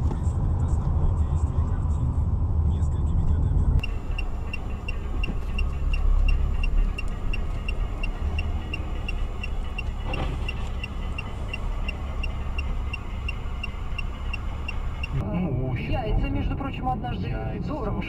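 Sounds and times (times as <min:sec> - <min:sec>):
car rumble in traffic: 0:00.0 - 0:18.0
steady high tick: 0:03.8 - 0:15.2.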